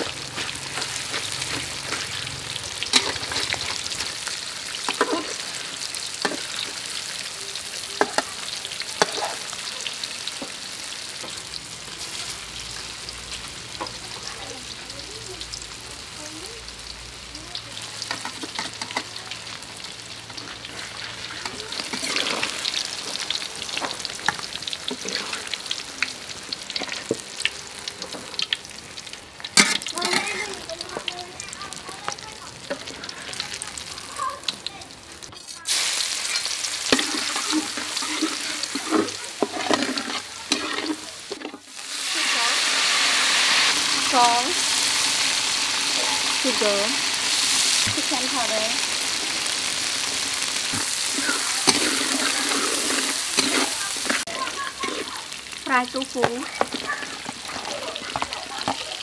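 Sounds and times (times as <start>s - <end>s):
metal spatula scraping wok: 0.0s - 6.9s, 9.0s - 9.6s, 20.3s - 31.5s, 32.5s - 33.8s, 35.4s - 49.0s, 49.6s - 59.0s
tofu sizzling in hot oil: 0.0s - 59.0s.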